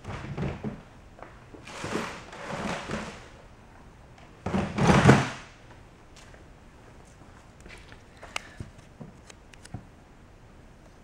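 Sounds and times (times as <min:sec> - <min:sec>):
scraping sliding noises: 0:01.6 - 0:03.4.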